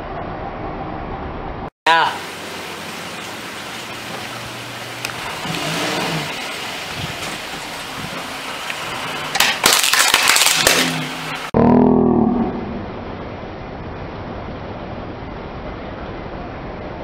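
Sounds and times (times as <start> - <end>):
toy guitar cracking and crunching: 9.4 - 11.1.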